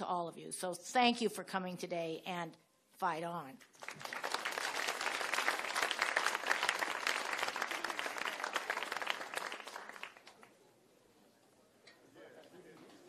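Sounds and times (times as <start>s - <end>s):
audience applauding: 3.8s - 10.5s.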